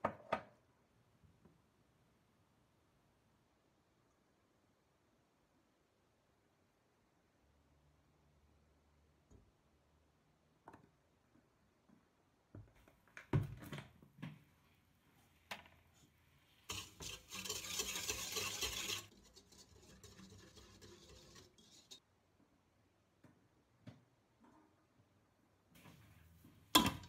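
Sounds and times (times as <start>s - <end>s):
dough stirred in bowl scraping: 16.6s - 22.0s
utensils clinking against metal bowl: 16.7s - 22.0s.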